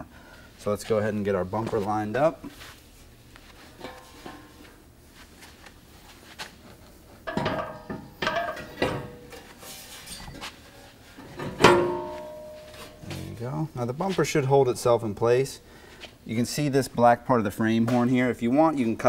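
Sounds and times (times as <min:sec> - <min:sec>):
metal clunks: 0:07.3 - 0:09.4, 0:11.2 - 0:13.3
loud ringing metal clank: 0:11.4 - 0:13.1.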